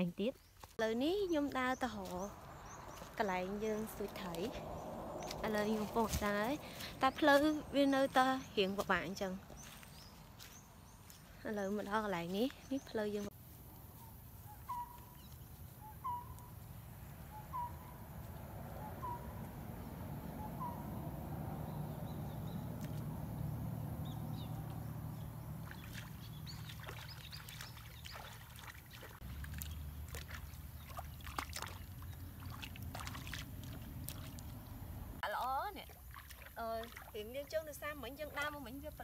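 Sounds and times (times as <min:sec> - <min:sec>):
water sloshing from wading: 0:01.4 - 0:13.2, 0:16.2 - 0:38.9
bird calling: 0:14.0 - 0:35.8
short splashes of hands: 0:25.6 - 0:34.6, 0:35.9 - 0:37.2.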